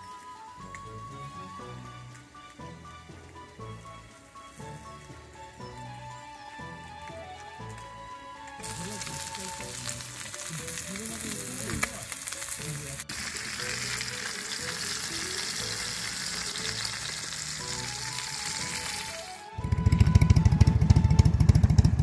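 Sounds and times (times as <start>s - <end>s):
meat sizzling in oil: 0.0s - 19.6s
background music: 0.0s - 22.0s
loud engine: 19.6s - 22.0s.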